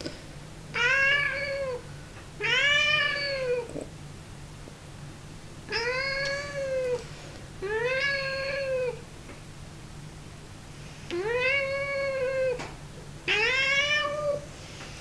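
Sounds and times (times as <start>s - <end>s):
cat meowing: 0.8s - 1.8s, 2.4s - 3.7s, 5.7s - 7.0s, 7.6s - 9.0s, 11.2s - 12.6s, 13.3s - 14.4s.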